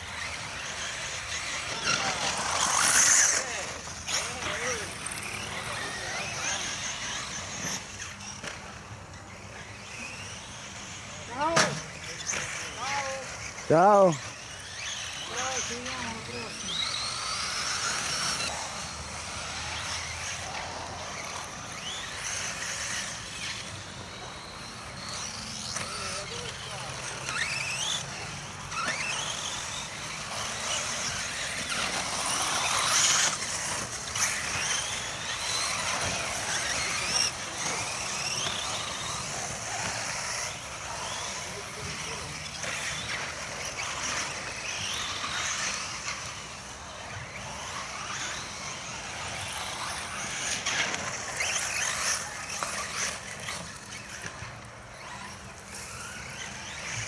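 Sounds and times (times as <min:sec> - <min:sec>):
toy car motor screaming: 0:00.0 - 0:57.0.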